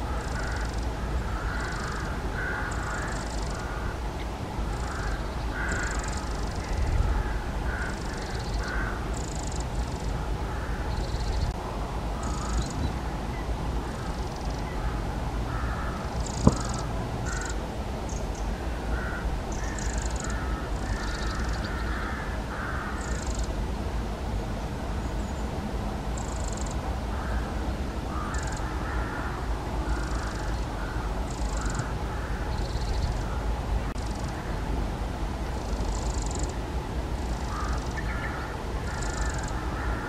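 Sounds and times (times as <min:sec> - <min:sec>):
lower harsh bird calls: 0:00.0 - 0:04.0, 0:04.7 - 0:11.6, 0:12.2 - 0:23.5, 0:28.1 - 0:34.5, 0:37.2 - 0:40.0
wren high calls: 0:00.1 - 0:03.9, 0:04.7 - 0:07.0, 0:07.7 - 0:11.6, 0:12.2 - 0:12.9, 0:15.5 - 0:18.4, 0:19.0 - 0:23.5, 0:28.1 - 0:29.2, 0:29.9 - 0:34.4, 0:37.2 - 0:40.0.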